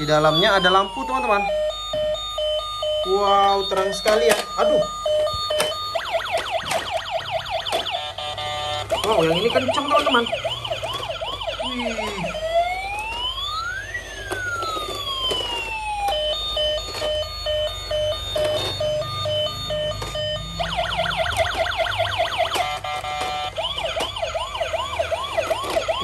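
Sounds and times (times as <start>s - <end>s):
toy electronic siren: 0.0s - 26.0s.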